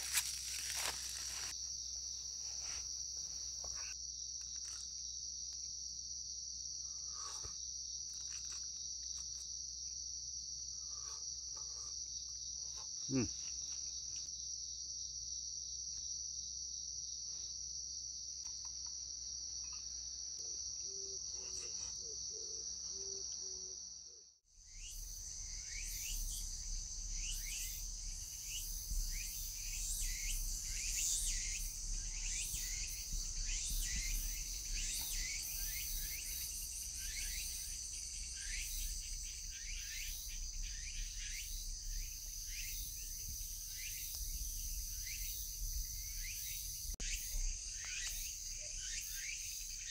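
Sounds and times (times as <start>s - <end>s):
quick crackles: 0.0s - 1.5s
crickets and night insects chirping: 0.0s - 49.9s.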